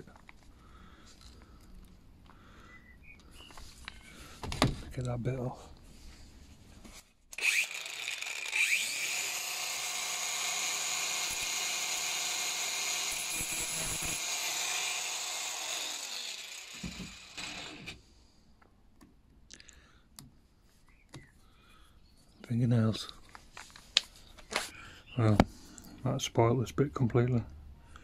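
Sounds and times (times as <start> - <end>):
angle grinder grinding steel: 7.4 - 18.0.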